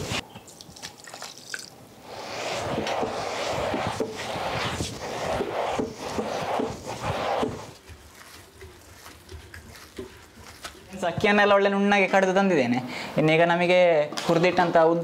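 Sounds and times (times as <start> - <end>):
stone grinder crunching wet rice: 7.8 - 10.9.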